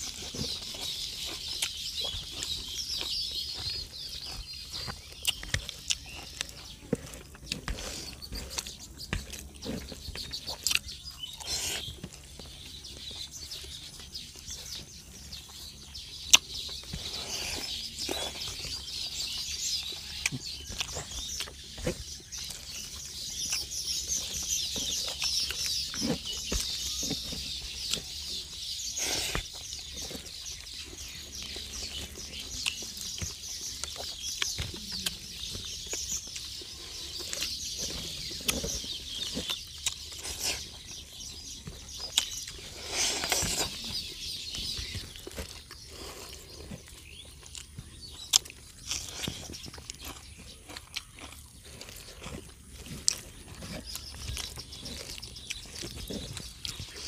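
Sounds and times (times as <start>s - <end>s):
fingers squishing food: 0.0s - 12.4s
birds or insects chirping: 0.0s - 57.0s
chewing: 0.0s - 57.0s.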